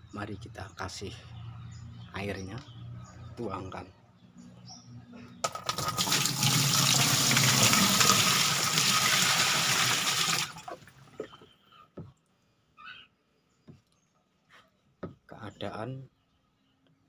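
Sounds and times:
water pouring into plastic tub: 5.4s - 11.0s.

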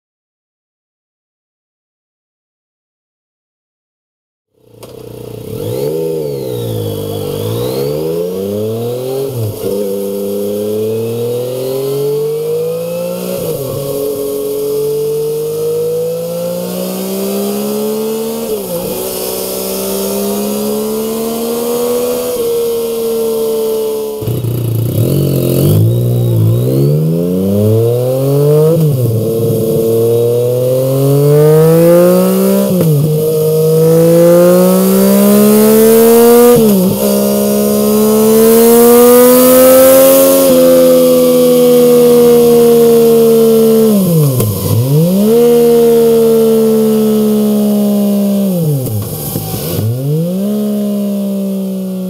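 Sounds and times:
motorcycle engine accelerating: 4.6s - 52.0s.

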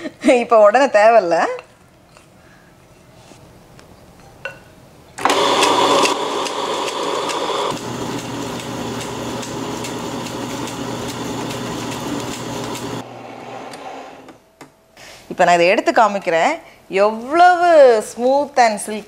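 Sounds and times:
wet grinder motor hum: 5.2s - 14.1s.

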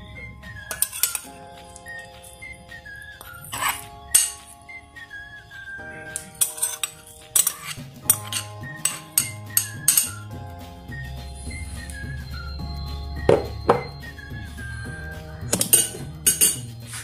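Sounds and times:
soft background music: 0.0s - 17.0s
glass bowl clinking: 0.7s - 2.5s, 3.2s - 4.7s, 6.1s - 10.3s, 13.2s - 14.0s, 15.4s - 17.0s.

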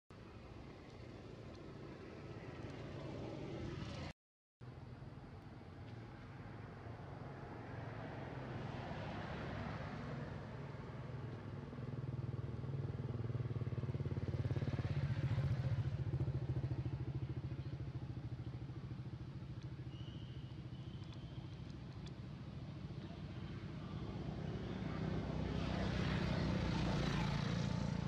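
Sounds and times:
vehicle engine passing: 20.2s - 28.0s.

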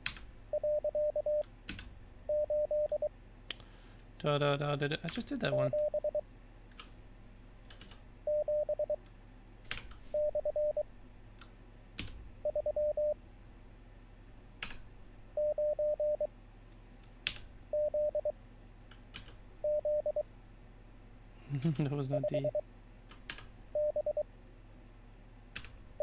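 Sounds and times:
morse code tone: 0.6s - 1.4s, 2.3s - 3.1s, 5.5s - 6.2s, 8.3s - 9.0s, 10.2s - 10.8s, 12.5s - 13.2s, 15.4s - 16.3s, 17.8s - 18.3s, 19.6s - 20.2s, 23.8s - 24.2s.

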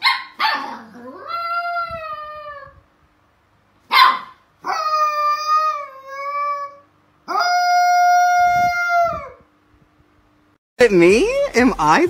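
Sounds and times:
puppy yapping: 0.0s - 2.7s, 3.9s - 9.4s
puppy howling: 0.4s - 2.8s, 4.0s - 9.5s.

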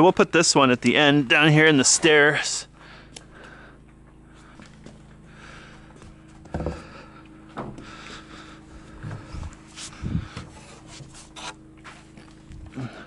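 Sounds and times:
steady low hum: 0.0s - 13.0s
wood rubbing: 9.0s - 12.2s.

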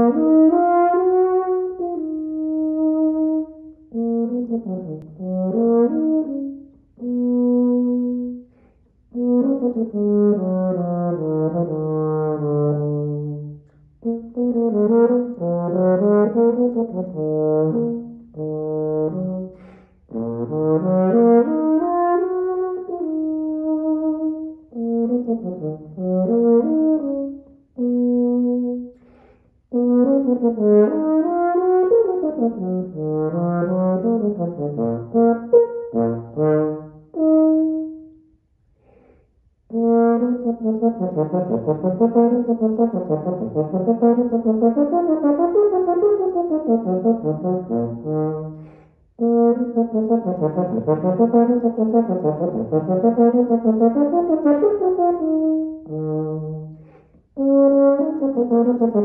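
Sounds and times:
solo euphonium melody: 0.0s - 38.4s, 39.6s - 59.0s.

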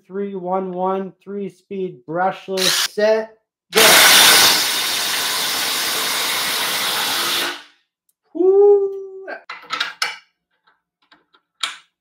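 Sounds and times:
impact drivers hammering screws: 2.6s - 2.9s.

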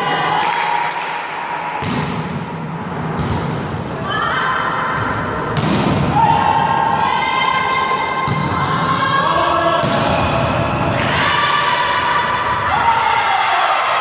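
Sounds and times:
voices shouting: 6.1s - 14.0s.

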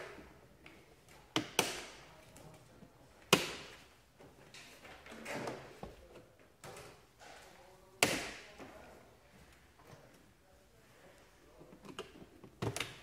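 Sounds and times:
plastic clicking and creaking: 11.6s - 13.0s.

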